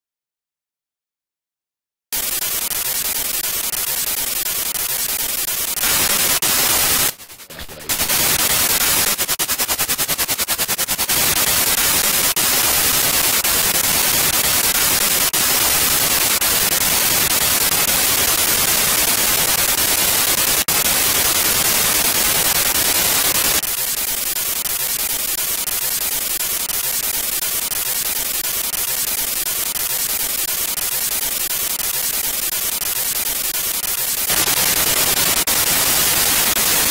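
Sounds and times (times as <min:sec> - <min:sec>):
radio static: 0:02.2 - 0:36.9.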